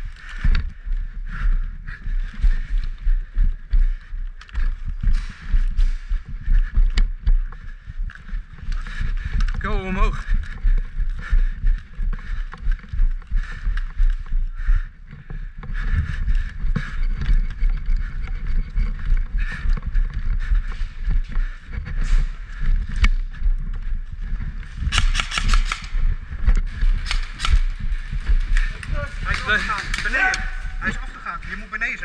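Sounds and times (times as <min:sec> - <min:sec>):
camera jostling rumble and knocks: 0:15.2 - 0:30.1
rapid airsoft gun shots: 0:24.8 - 0:26.2, 0:26.8 - 0:30.7
sharp clicks: 0:24.9 - 0:30.6.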